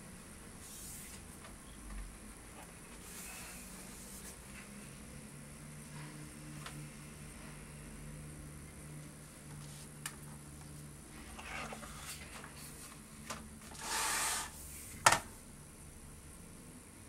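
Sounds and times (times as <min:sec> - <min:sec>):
book sliding across table: 0:00.6 - 0:01.3, 0:02.9 - 0:04.8, 0:11.2 - 0:13.0, 0:13.6 - 0:14.9.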